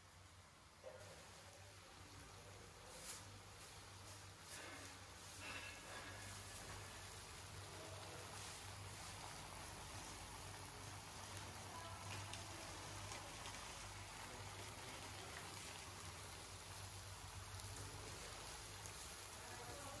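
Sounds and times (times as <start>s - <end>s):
kebabs sizzling and crackling: 0.0s - 20.0s.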